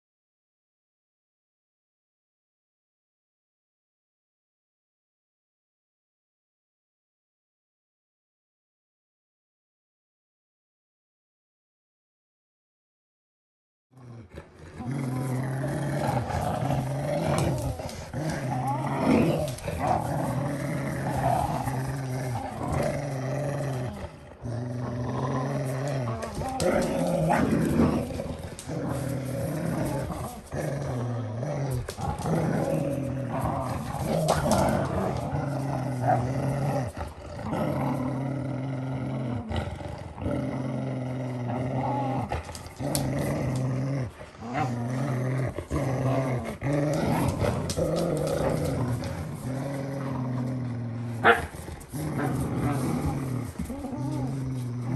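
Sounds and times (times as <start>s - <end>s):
dogs play-growling: 14.0s - 54.9s.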